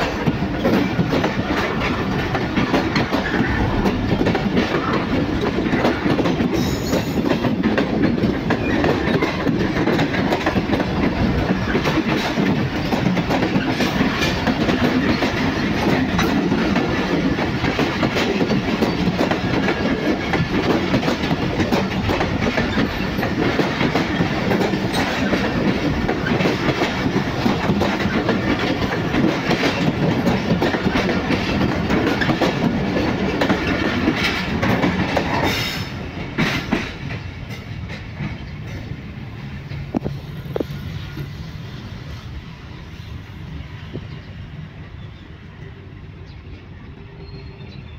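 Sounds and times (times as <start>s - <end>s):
train wheels clattering over rail joints: 0.0s - 41.4s.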